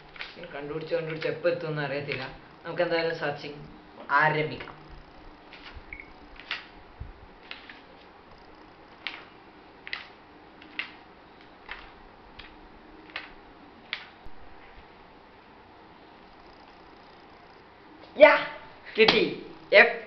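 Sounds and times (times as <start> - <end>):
pages turning: 0.0 - 1.4, 5.5 - 6.8, 7.4 - 8.1, 8.9 - 14.9.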